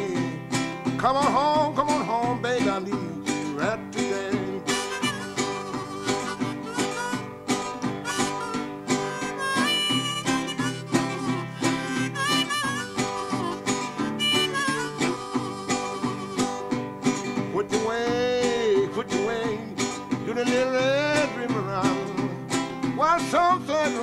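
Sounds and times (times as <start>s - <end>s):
guitar picked in steady rhythm: 0.0s - 24.0s
harmonica wailing bending notes: 4.1s - 17.3s.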